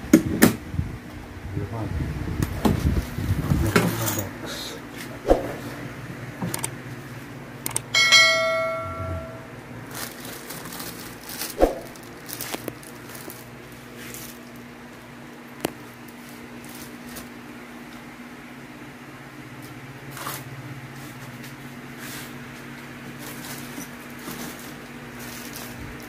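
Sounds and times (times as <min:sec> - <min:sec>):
click: 0:07.6 - 0:07.8
metallic clang: 0:08.0 - 0:09.5
rustling: 0:08.1 - 0:14.6, 0:21.0 - 0:26.0.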